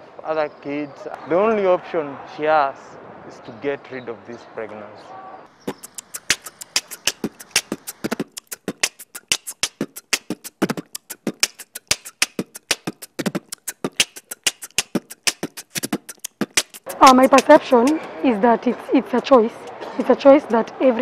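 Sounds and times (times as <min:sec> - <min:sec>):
beatbox clicks and snaps: 0:05.7 - 0:18.1.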